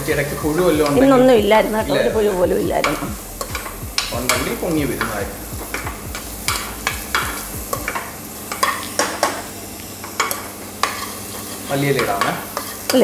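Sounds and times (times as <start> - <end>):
vegetables sizzling: 0.0 - 13.0
spoon scraping inside a pot: 12.5 - 12.9.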